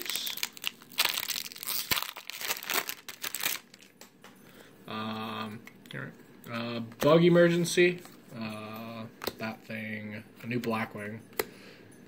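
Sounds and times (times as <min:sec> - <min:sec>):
foil wrapper crinkling and tearing: 0:00.0 - 0:03.9
cards rustling: 0:00.0 - 0:04.0.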